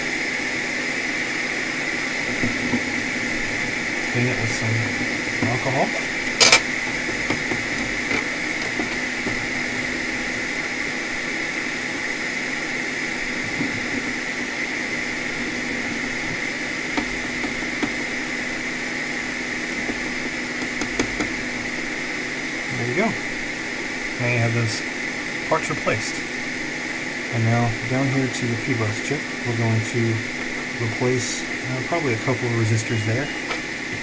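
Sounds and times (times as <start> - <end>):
constant whine: 0.0 - 34.0
hot air station airflow hiss: 0.0 - 34.0.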